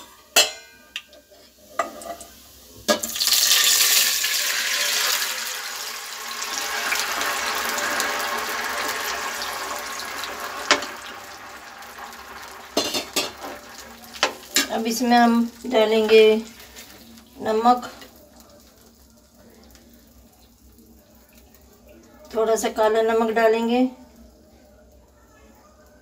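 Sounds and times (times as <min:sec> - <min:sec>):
liquid sizzling in hot pan: 0:00.0 - 0:26.0
utensils clinking: 0:12.8 - 0:14.9.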